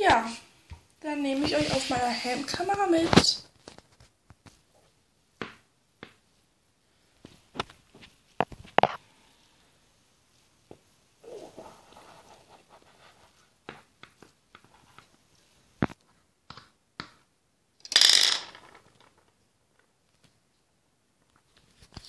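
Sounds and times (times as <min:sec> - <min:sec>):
plastic toy hooves clicking on wood: 0:17.8 - 0:19.3.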